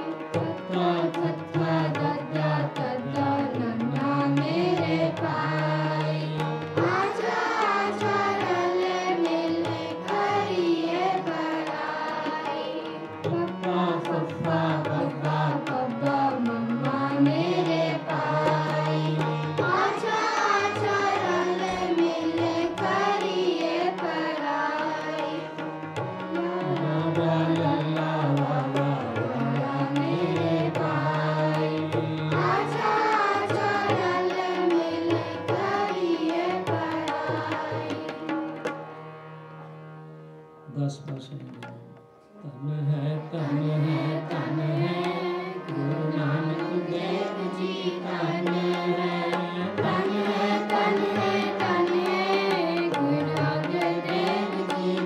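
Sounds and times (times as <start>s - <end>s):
harmonium chords: 0.0s - 55.0s
children singing a hymn: 6.8s - 12.8s, 17.4s - 25.1s, 32.4s - 37.7s, 46.6s - 49.2s
girl singing lead: 15.0s - 25.5s, 32.3s - 38.0s.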